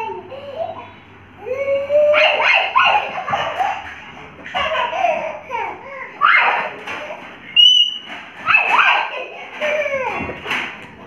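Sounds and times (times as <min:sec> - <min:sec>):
children laughing and squealing: 0:00.0 - 0:10.6.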